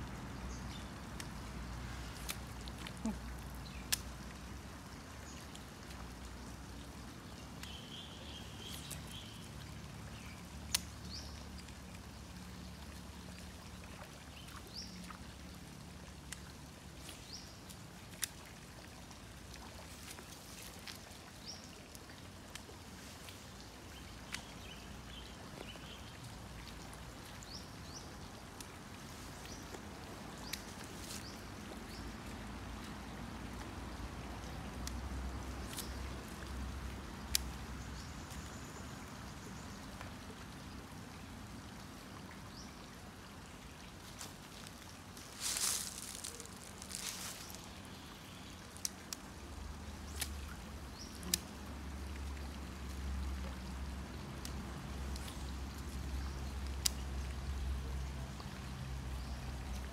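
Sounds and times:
faint clicks: 50.1 - 51.6.

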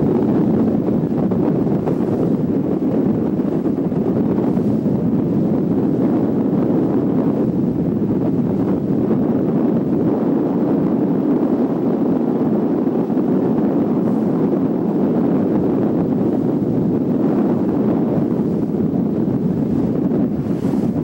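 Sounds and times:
boat low rushing noise: 0.0 - 21.0
wind buffeting microphone: 0.0 - 21.0.

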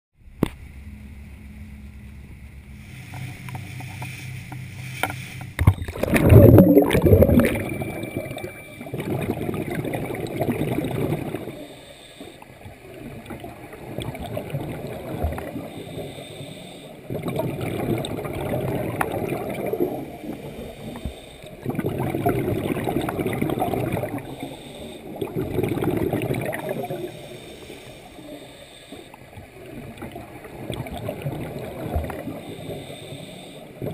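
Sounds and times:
motorboat engine humming: 0.2 - 33.9
churning rush of water: 2.8 - 11.6, 25.1 - 27.1
underwater regulator bubbles: 3.0 - 33.9.

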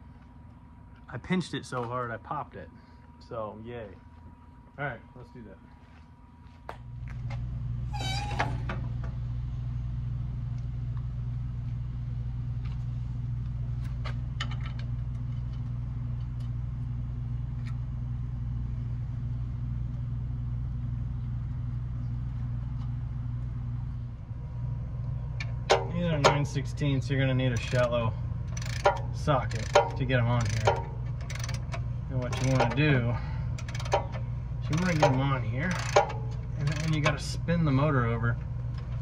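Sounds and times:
steady low hum: 0.0 - 39.0
short squeak: 7.9 - 8.7.

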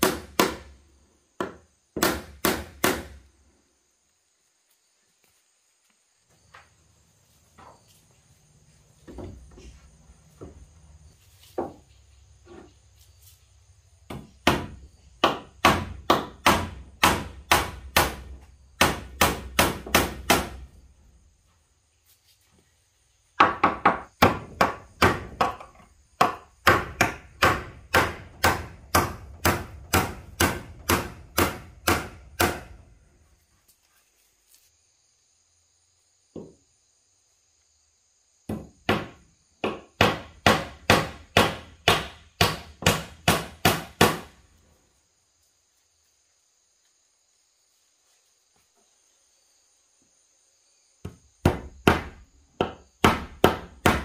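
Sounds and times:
sharp strikes on wood: 0.0 - 0.8, 1.4 - 3.2, 14.1 - 20.7, 23.4 - 32.8, 38.5 - 44.4, 51.0 - 54.0.

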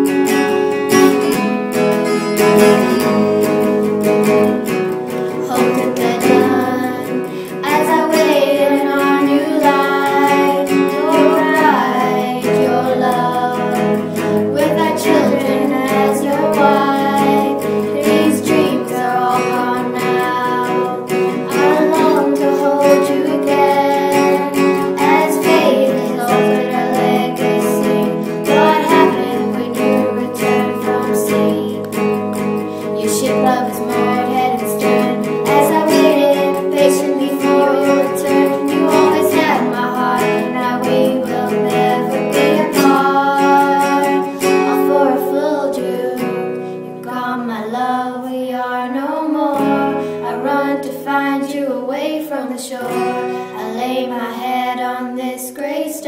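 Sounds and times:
acoustic guitar: 0.0 - 56.0
person singing: 0.0 - 56.0.

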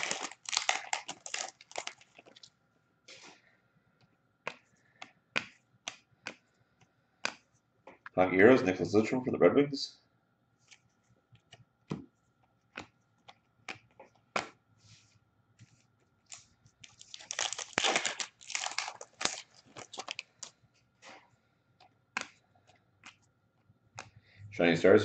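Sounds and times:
card pack wrapper crinkling and tearing: 0.0 - 2.5, 16.3 - 20.5
trading cards clicking and tapping: 7.2 - 8.1, 12.7 - 14.6, 21.8 - 24.2.

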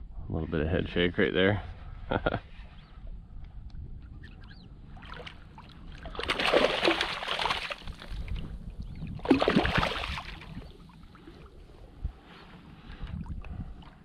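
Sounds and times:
fish splashing at water surface: 6.0 - 8.2.

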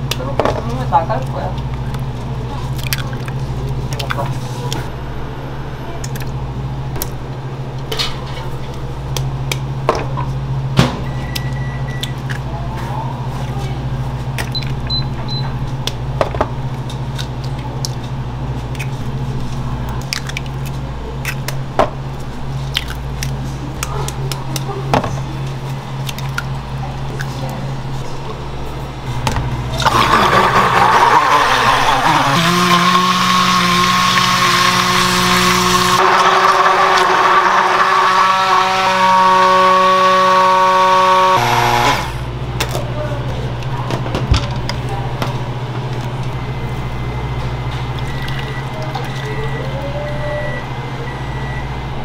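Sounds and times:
low machine hum: 0.0 - 52.0
loud machine running: 28.9 - 42.6.

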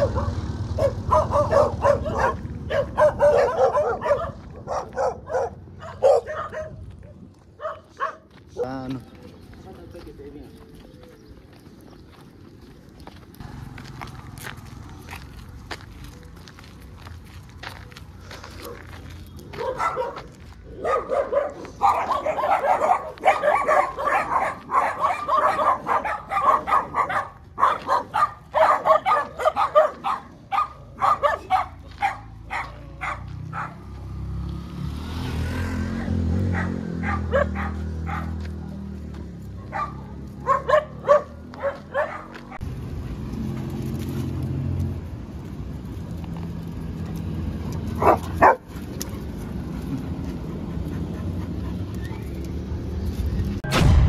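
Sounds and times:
vehicle engine passing: 0.0 - 7.3, 11.9 - 54.0
dogs barking: 0.0 - 8.9, 18.5 - 34.2, 35.7 - 42.7, 47.2 - 52.1.

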